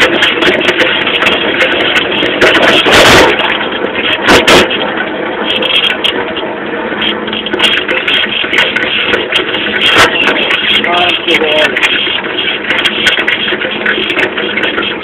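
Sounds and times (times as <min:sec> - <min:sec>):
loud thumps: 0:00.0 - 0:06.2
bike rattling and knocking: 0:00.0 - 0:15.0
moped engine running: 0:00.0 - 0:15.0.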